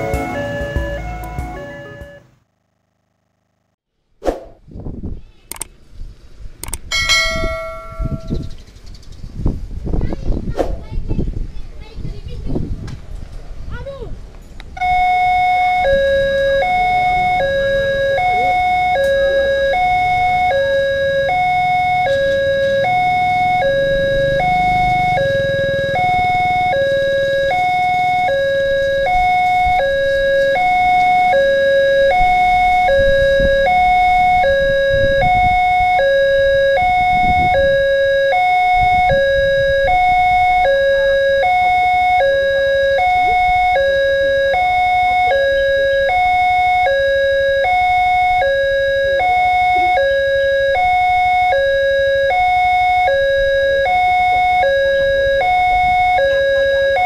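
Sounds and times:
level crossing two-tone alarm: 0:00.0 - 0:02.4, 0:14.8 - 0:57.0.

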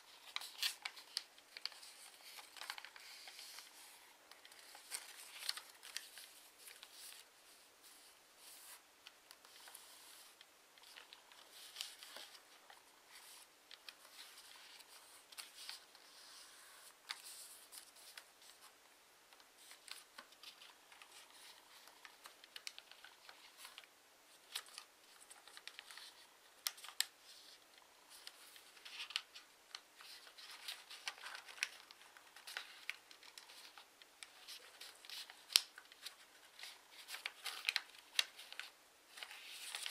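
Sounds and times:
paper rustling and crackling: 0:00.0 - 0:39.9
paper fold clicks: 0:00.2 - 0:03.7, 0:28.1 - 0:39.9.

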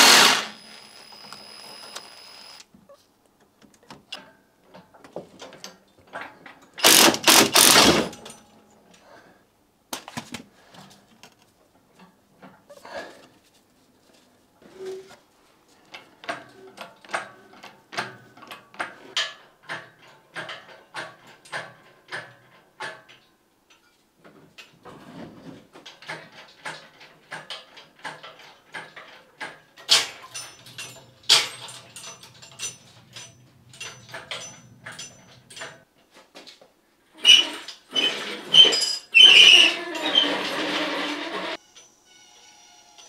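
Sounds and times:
metal knocks and clanks: 0:26.0 - 0:35.8.

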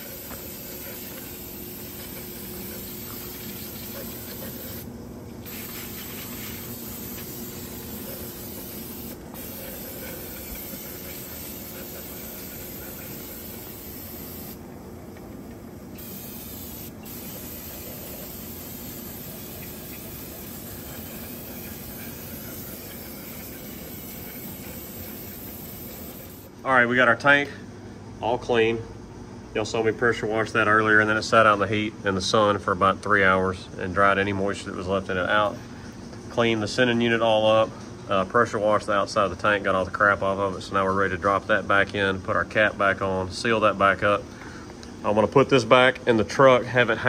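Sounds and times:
aerosol spray hissing: 0:00.0 - 0:14.6, 0:15.9 - 0:26.5.

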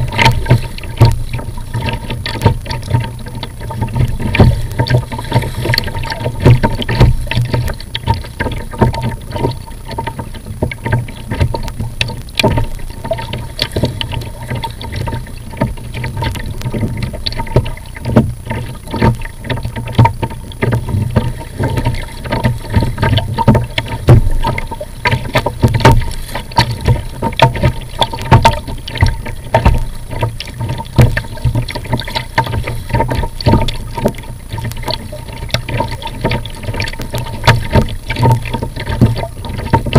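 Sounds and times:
paddle splashing water: 0:00.0 - 0:39.9
water slapping plastic hull: 0:00.0 - 0:39.9.

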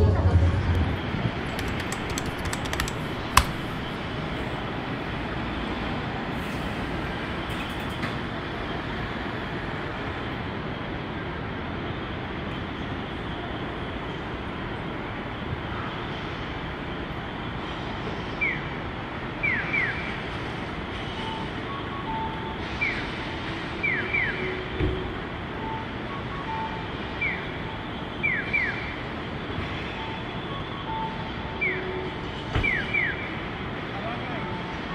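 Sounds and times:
city traffic: 0:00.0 - 0:34.9.

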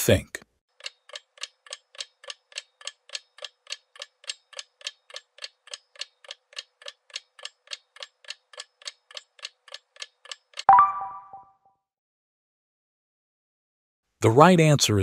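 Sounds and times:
clock ticking: 0:00.8 - 0:10.7.

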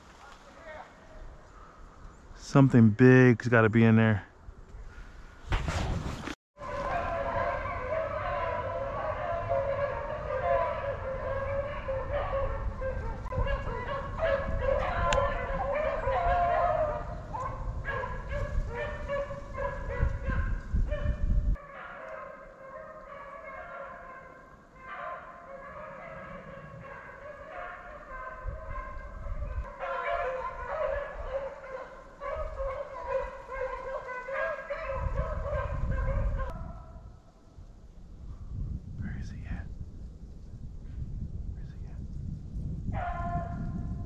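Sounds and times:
dogs baying: 0:06.6 - 0:36.9.

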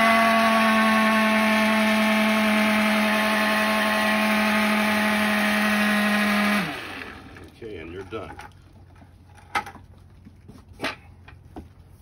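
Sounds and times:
water spraying into bucket: 0:00.0 - 0:07.7.

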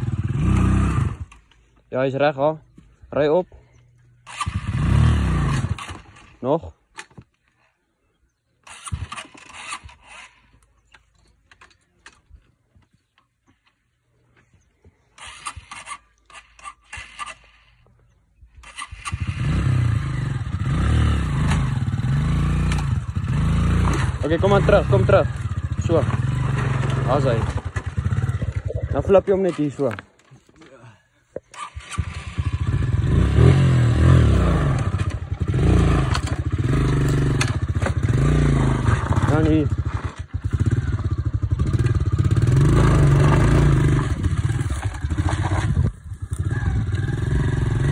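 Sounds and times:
dirt bike engine revving: 0:00.0 - 0:01.5, 0:04.3 - 0:06.4, 0:18.6 - 0:30.0, 0:31.5 - 0:47.9
clattering and scraping on rocks: 0:38.8 - 0:40.3, 0:43.2 - 0:46.5.

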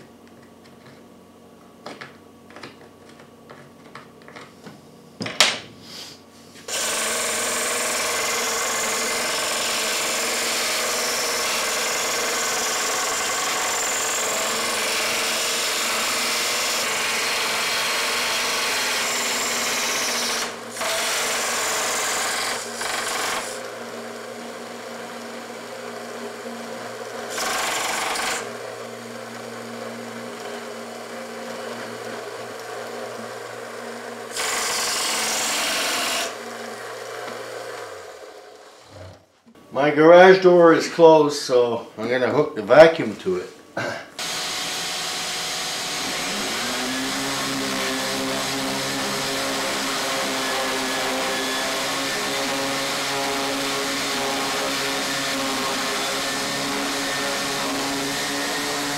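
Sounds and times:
belt sander motor humming: 0:06.7 - 0:39.2, 0:44.2 - 0:58.9.

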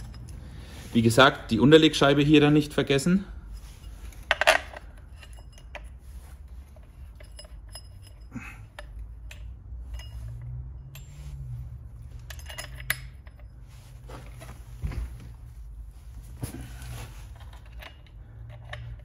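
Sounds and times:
light metallic clinks and clicks: 0:00.0 - 0:00.6, 0:03.5 - 0:14.6, 0:17.3 - 0:19.0.

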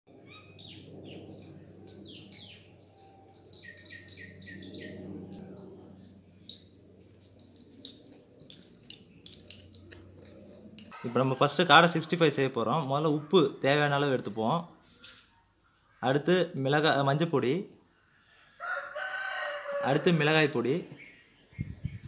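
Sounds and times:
birds chirping: 0:00.1 - 0:14.0, 0:20.0 - 0:22.0
faint low hum: 0:00.5 - 0:11.0.

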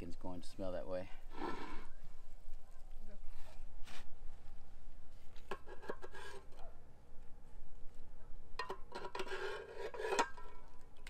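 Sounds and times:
knife scraping on skillet: 0:01.3 - 0:01.9, 0:05.5 - 0:06.5, 0:08.8 - 0:10.5.

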